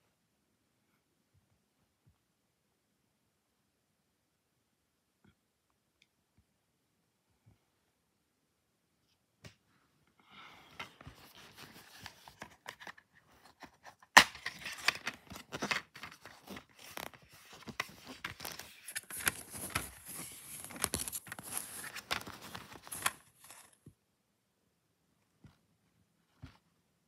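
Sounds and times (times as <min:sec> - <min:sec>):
plastic case snapping: 0:14.0 - 0:16.2
plastic tearing and crinkling: 0:14.0 - 0:23.7.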